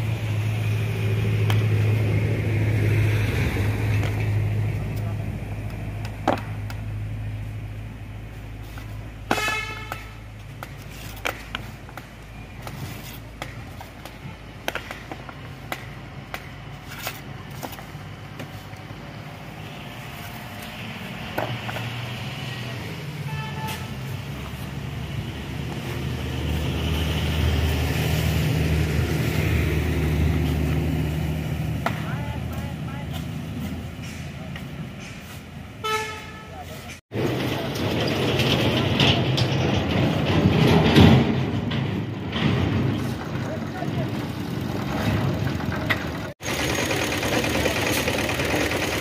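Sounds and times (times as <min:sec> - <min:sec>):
heavy vehicle engine: 0:00.0 - 0:49.0
hum of traffic and machinery: 0:00.0 - 0:49.0.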